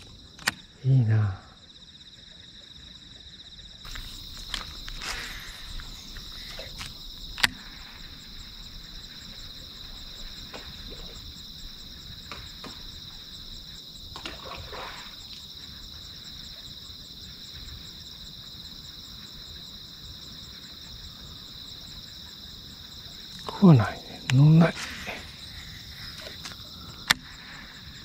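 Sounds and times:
sharp click: 0.0s - 0.7s
high-pitched insect chorus: 0.0s - 28.0s.

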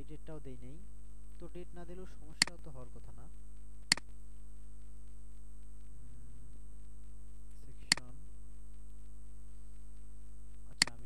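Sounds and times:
electrical mains hum: 0.0s - 11.0s
mouse clicks: 2.3s - 2.7s, 3.8s - 4.2s, 7.8s - 8.2s, 10.7s - 11.0s.

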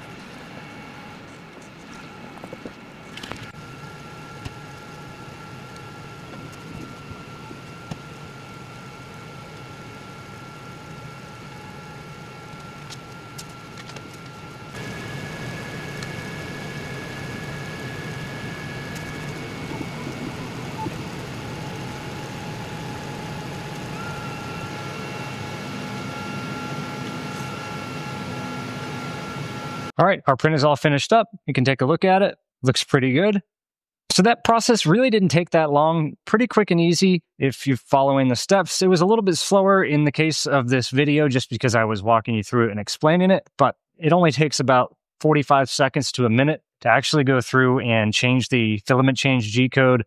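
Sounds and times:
printer motors whining: 0.0s - 29.9s
steady whir: 0.0s - 30.0s.

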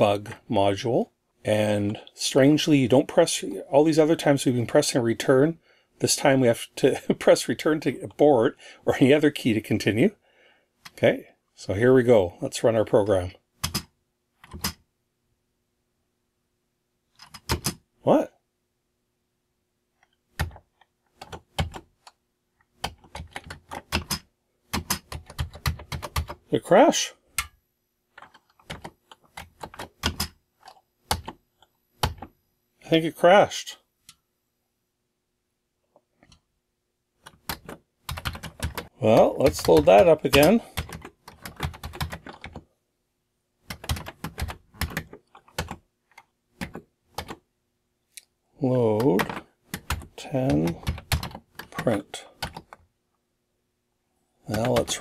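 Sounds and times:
computer keyboard keys clacking: 13.6s - 14.8s, 17.2s - 17.8s, 22.8s - 24.2s, 24.8s - 26.4s, 28.2s - 31.4s, 37.3s - 42.6s, 43.7s - 45.8s, 49.0s - 52.8s.

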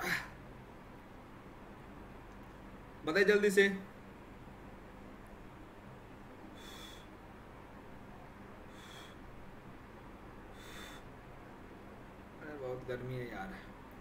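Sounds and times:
faint steady hum: 0.0s - 14.0s
man exhaling hissingly: 6.5s - 7.2s, 8.7s - 9.2s, 10.5s - 11.1s.

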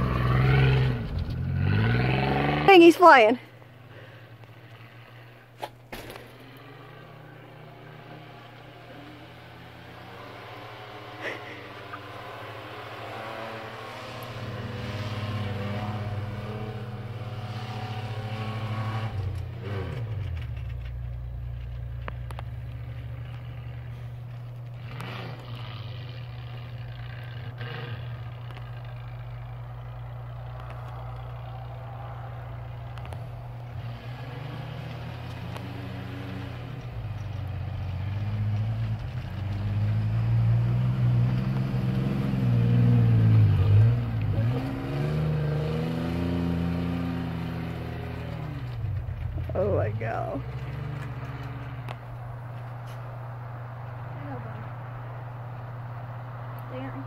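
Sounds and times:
pickup engine revving: 0.0s - 3.3s, 3.9s - 57.0s.

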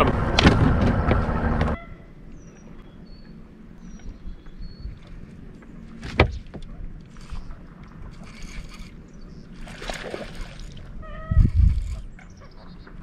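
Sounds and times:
fish splashing: 9.5s - 11.0s.

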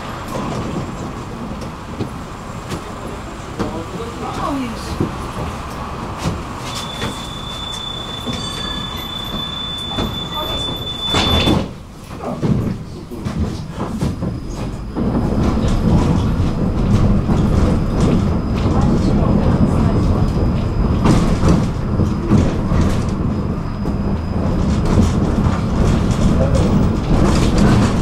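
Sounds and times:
tram doors shutting thump: 0.0s - 28.0s
tram motors and wheels running: 0.0s - 28.0s
high door-warning beep: 6.7s - 11.8s.

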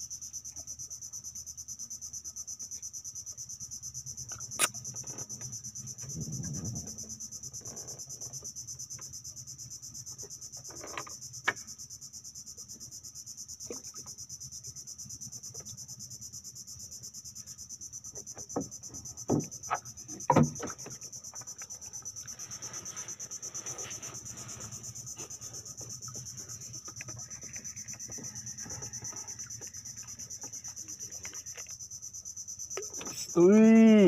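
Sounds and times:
insects buzzing: 0.0s - 34.0s.

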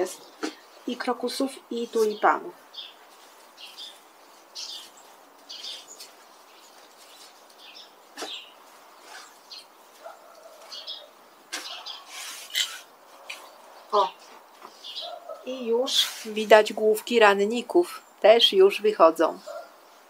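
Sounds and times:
rake scratching through dry leaves: 3.0s - 7.6s, 11.5s - 13.5s.

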